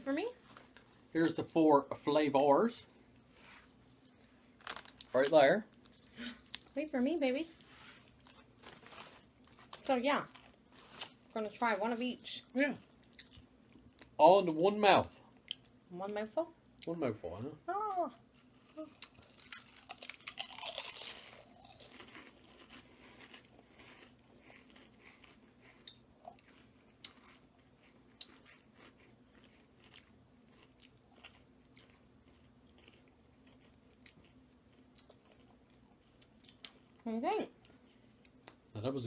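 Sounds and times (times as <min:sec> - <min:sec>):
people crunching potato chips: 0:03.9 - 0:06.8, 0:08.0 - 0:11.4, 0:18.4 - 0:36.8.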